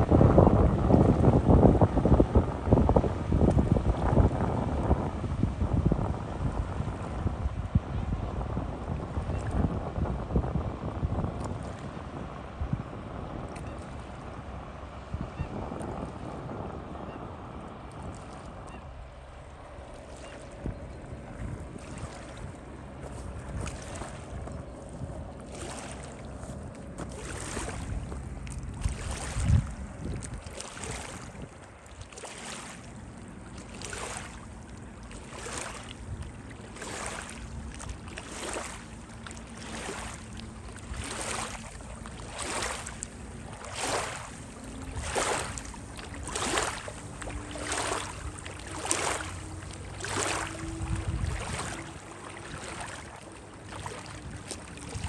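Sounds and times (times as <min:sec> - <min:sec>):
wind gust on microphone: 0:00.0 - 0:31.7, 0:35.2 - 0:55.0
distant motorboat engine hum: 0:00.0 - 0:55.0
waves lapping against rocks: 0:19.9 - 0:55.0.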